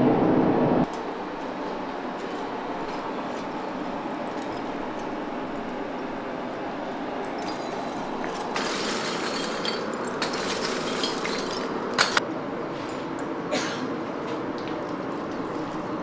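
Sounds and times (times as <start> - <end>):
steady rushing noise: 0.0 - 4.2
charcoal clinking against iron tongs: 0.9 - 12.2.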